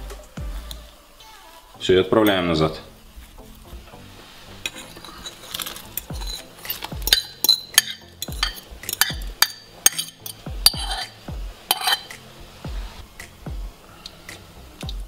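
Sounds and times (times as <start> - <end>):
fork scraping and clinking bowl: 4.6 - 12.2.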